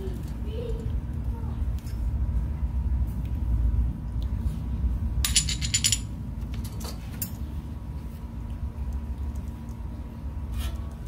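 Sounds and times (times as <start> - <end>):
metal parts clinking: 5.2 - 7.4.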